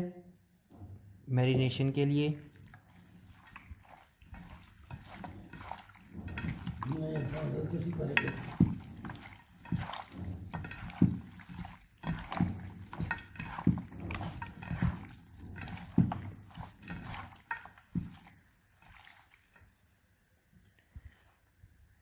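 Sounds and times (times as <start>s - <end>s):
hands squelching chicken in marinade: 2.0s - 19.9s.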